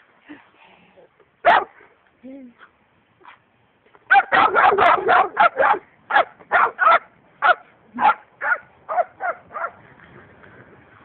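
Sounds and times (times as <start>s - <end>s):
dog barking: 1.4s - 1.7s, 4.1s - 9.8s.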